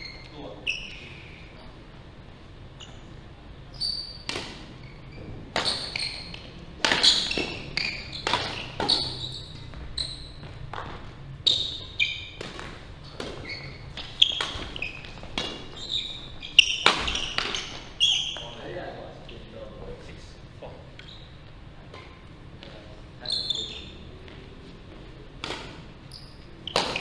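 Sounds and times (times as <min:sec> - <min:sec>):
shoes squeaking on wooden floor: 0:02.8 - 0:19.6, 0:20.9 - 0:21.5, 0:22.6 - 0:25.2
rackets striking shuttlecock: 0:05.5 - 0:17.9, 0:25.4 - 0:25.9, 0:26.6 - 0:27.0.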